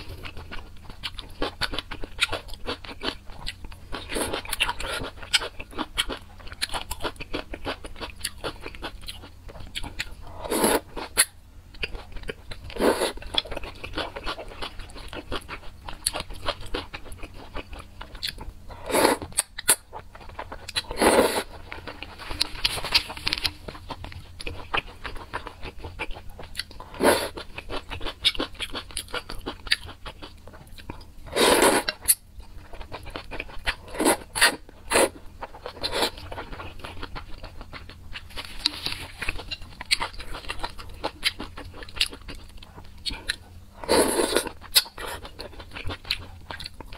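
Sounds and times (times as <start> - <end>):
wet chewing: 0.0 - 46.9
slurping noodles: 10.4 - 10.8, 18.8 - 19.3, 20.9 - 21.5, 31.3 - 32.0, 43.8 - 44.5.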